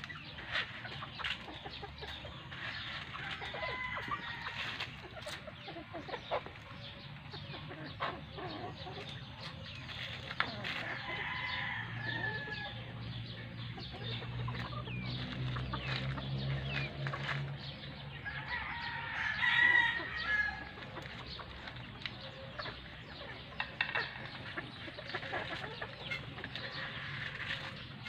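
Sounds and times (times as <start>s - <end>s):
chickens clucking: 0.0s - 28.0s
drawn-out rooster-like call: 2.6s - 5.1s, 10.4s - 13.0s, 18.2s - 22.6s.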